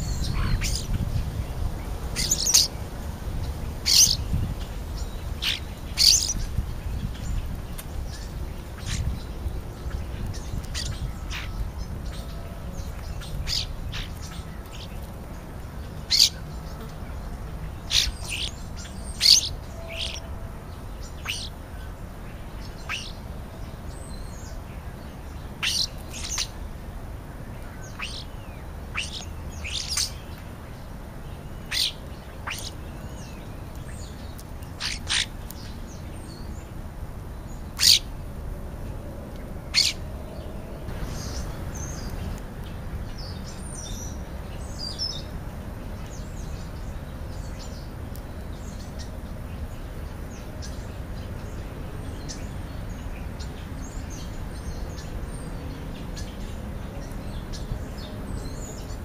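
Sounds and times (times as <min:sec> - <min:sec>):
starlings giving sharp high calls: 0:00.0 - 0:02.8, 0:03.4 - 0:15.1, 0:16.0 - 0:22.0, 0:22.6 - 0:23.2, 0:25.3 - 0:26.6, 0:27.6 - 0:36.5, 0:37.7 - 0:38.1, 0:39.7 - 0:40.0, 0:40.9 - 0:42.4
bird twittering: 0:02.2 - 0:02.8, 0:03.8 - 0:04.4, 0:05.0 - 0:06.5, 0:13.2 - 0:15.0, 0:16.1 - 0:16.4, 0:17.8 - 0:20.3, 0:21.2 - 0:21.6, 0:22.8 - 0:23.2, 0:25.6 - 0:26.6, 0:27.7 - 0:30.3, 0:31.6 - 0:34.1, 0:34.8 - 0:35.7, 0:37.8 - 0:38.1.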